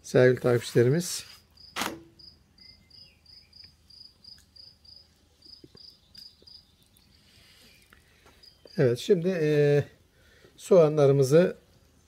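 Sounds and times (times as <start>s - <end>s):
cricket chirping: 1.5s - 8.9s.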